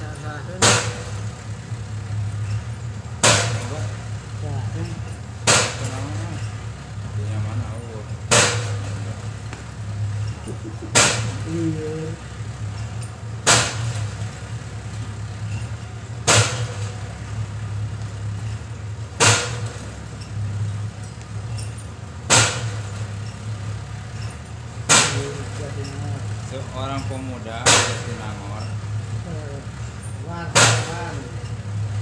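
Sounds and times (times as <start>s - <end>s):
low mechanical hum: 0.0s - 32.0s
sharp bang: 0.5s - 1.3s, 3.2s - 3.9s, 5.4s - 6.2s, 8.3s - 9.1s, 10.9s - 11.6s, 13.4s - 14.2s, 16.2s - 17.0s, 19.2s - 19.9s, 22.3s - 23.0s, 24.9s - 25.5s, 27.6s - 28.4s, 30.5s - 31.3s.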